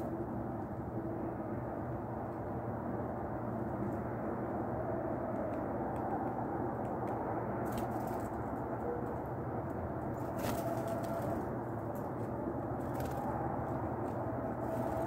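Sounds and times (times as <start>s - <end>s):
low background rumble and hum: 0.0s - 15.0s.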